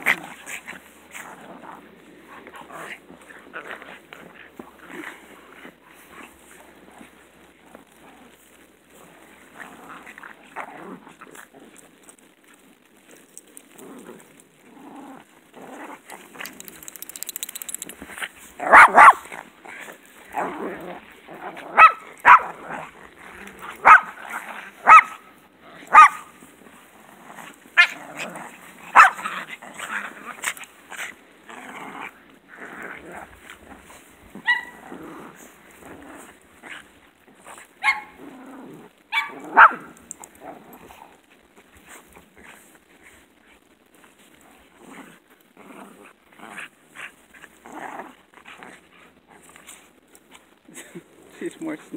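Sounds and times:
dogs barking: 0:18.7 - 0:19.2, 0:29.0 - 0:29.2.

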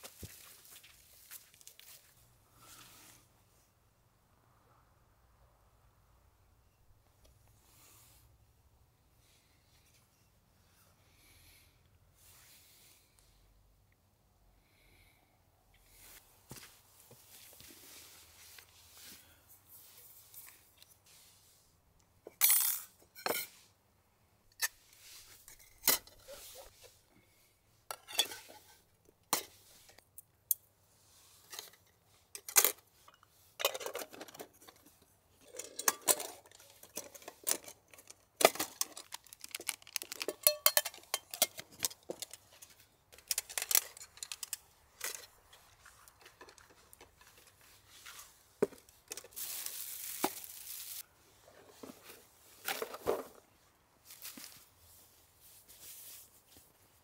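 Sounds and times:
cookware clinking and clattering: 0:40.3 - 0:41.7.

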